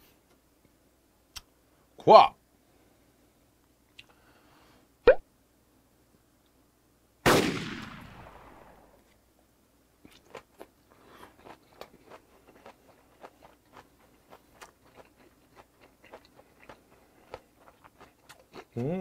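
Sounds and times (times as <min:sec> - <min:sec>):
close-miked chewing: 0:10.0 - 0:19.0.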